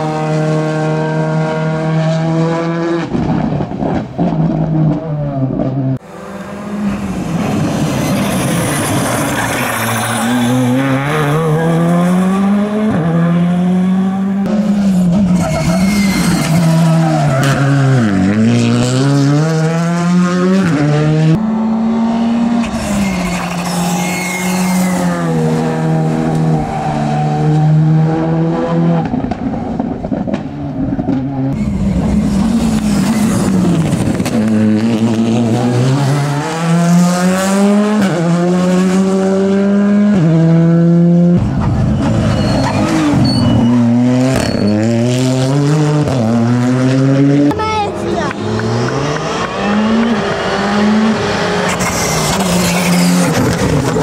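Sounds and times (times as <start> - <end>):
rally car engines revving: 0.0 - 54.0
tyre squeal: 7.7 - 12.2, 15.1 - 18.1, 22.6 - 25.7, 31.6 - 34.0, 41.6 - 45.3, 51.7 - 54.0.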